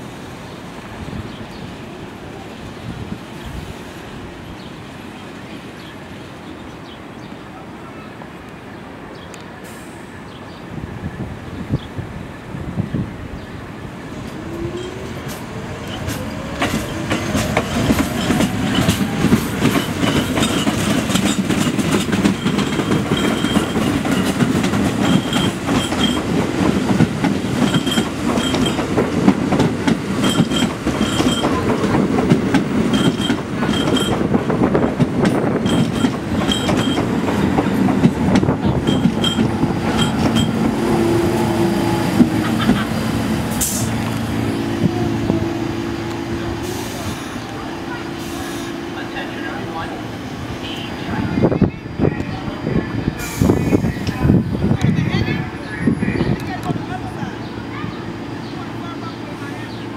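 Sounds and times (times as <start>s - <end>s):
subway train wheels rumbling: 0.0s - 59.9s
wheels clicking over rail joints: 14.3s - 40.8s.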